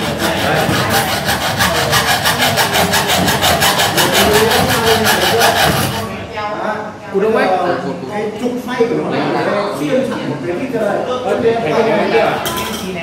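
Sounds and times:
hacksaw cutting wood: 0.0s - 6.1s.

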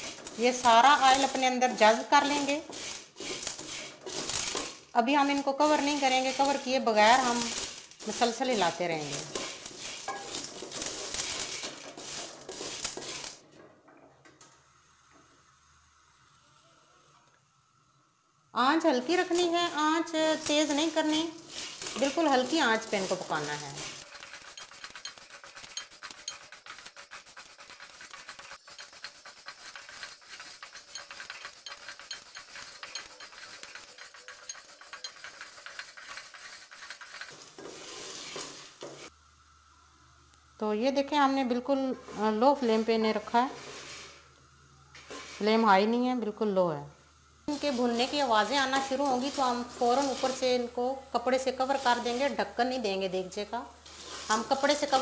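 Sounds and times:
popcorn kernels rattling in pot: 0.0s - 13.5s, 19.0s - 38.7s, 47.5s - 55.0s.

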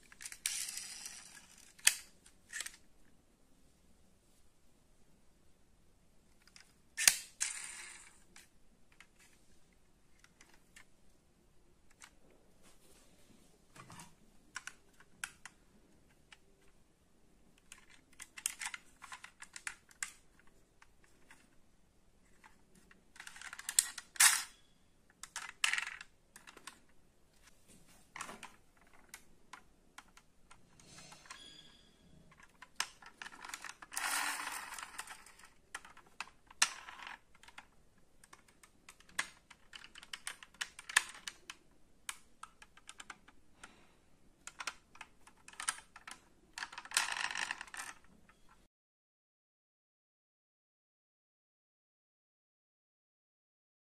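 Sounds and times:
plastic toys clicking and rattling: 0.0s - 2.8s, 6.4s - 9.2s, 17.6s - 21.6s, 22.3s - 26.9s, 32.3s - 43.8s, 44.4s - 48.2s
toy scraping: 0.2s - 2.8s, 7.0s - 8.2s, 30.6s - 37.2s.

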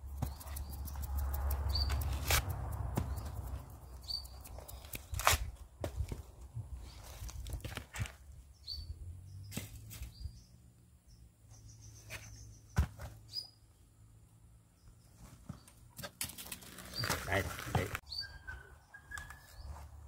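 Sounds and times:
bird chirps: 0.1s - 2.2s, 3.1s - 5.2s, 8.5s - 13.6s, 18.0s - 19.9s.

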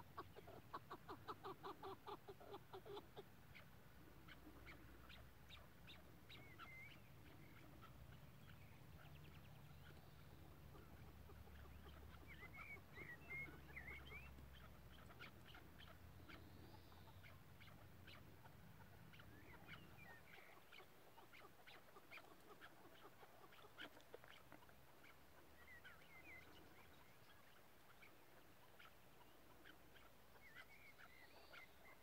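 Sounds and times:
partridge clucking calls: 0.0s - 32.0s.

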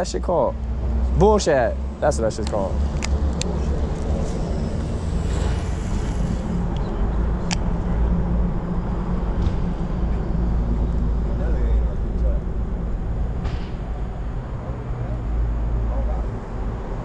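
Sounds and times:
wind rumbling on microphone: 1.9s - 11.3s.

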